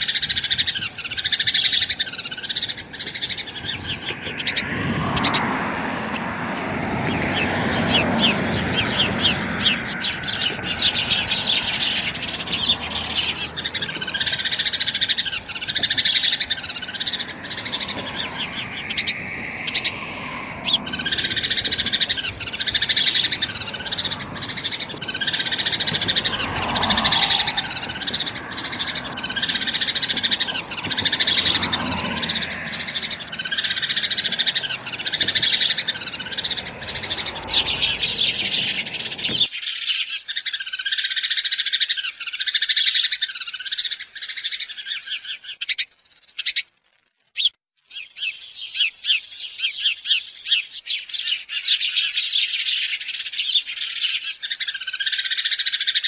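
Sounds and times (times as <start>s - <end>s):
birds chirping: 0.0s - 46.6s, 47.4s - 56.0s.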